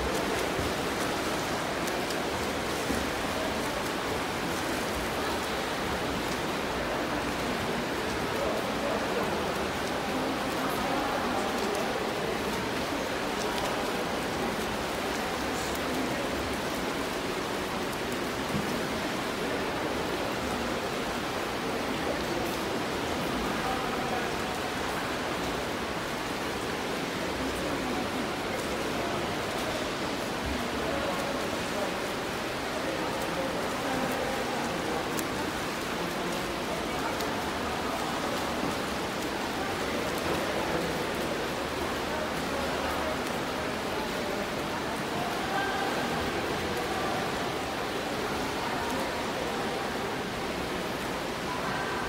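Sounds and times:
swimmers splashing: 0.0 - 20.4
pool water churning: 0.0 - 52.0.

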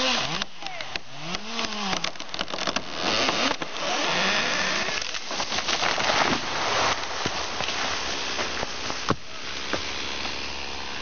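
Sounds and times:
chainsaw revving: 0.0 - 5.3
wood cracking: 0.1 - 10.4
tree crashing through branches: 1.4 - 10.5.

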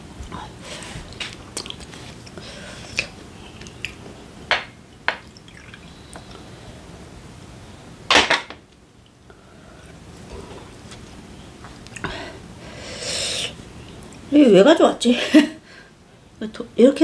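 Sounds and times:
liquid pouring into glass: 5.2 - 6.0.

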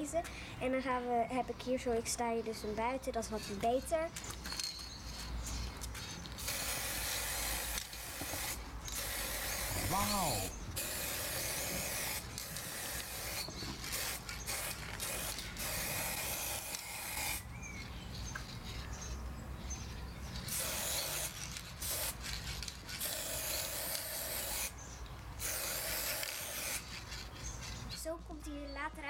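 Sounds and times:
spray paint can hissing: 6.4 - 17.4, 20.4 - 24.8, 25.4 - 27.6.

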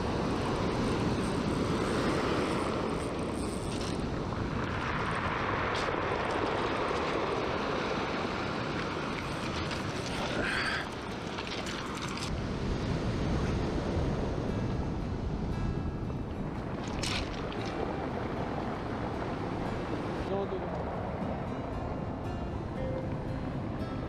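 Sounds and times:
wind on microphone: 0.0 - 24.0
surf breaking on pebble beach: 4.1 - 12.1.

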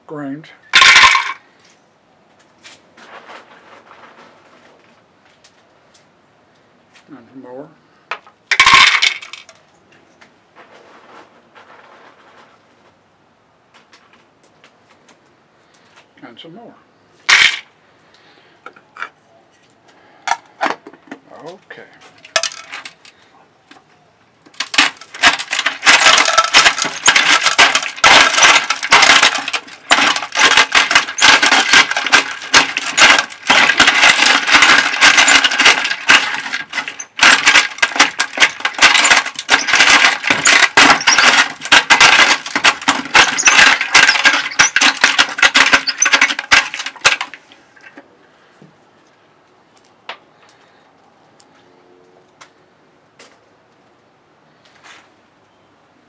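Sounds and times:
crusher grinding coal: 24.5 - 47.6.

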